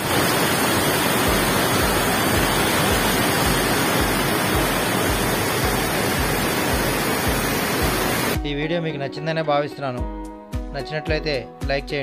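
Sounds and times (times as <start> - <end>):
water roaring from dam gate: 0.0 - 8.4.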